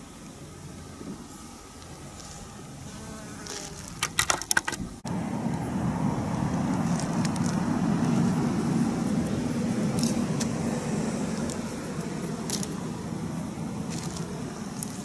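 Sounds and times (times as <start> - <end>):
steady low rumble: 4.8 - 15.0.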